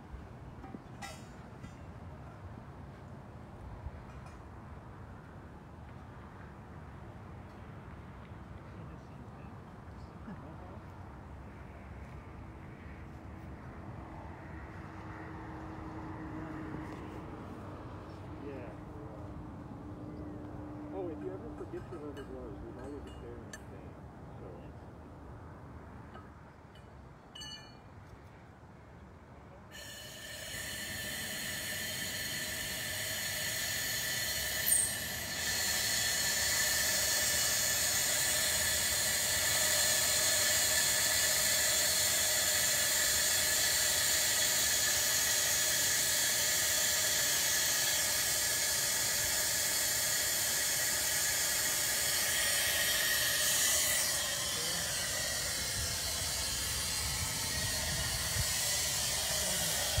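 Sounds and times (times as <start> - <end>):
compressed gas hissing through valve: 29.7 - 60.0.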